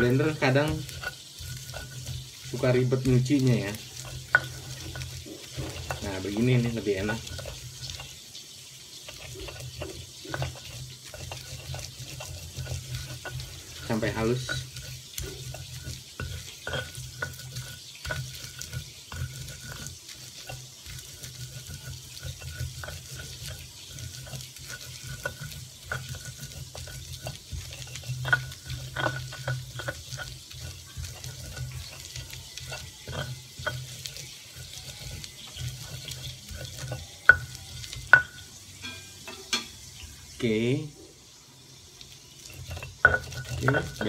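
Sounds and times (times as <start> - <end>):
pestle grinding in stone mortar: 0.0 - 40.6, 41.6 - 44.0.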